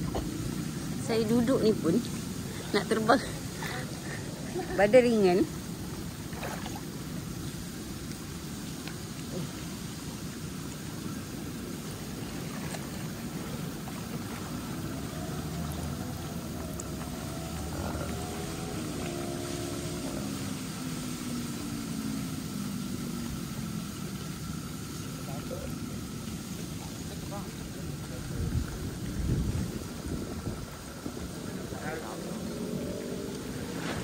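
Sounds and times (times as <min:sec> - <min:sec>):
faint constant hum: 0:00.0 - 0:34.0
pool water lapping: 0:00.0 - 0:34.0
propeller aircraft passing overhead: 0:12.3 - 0:34.0.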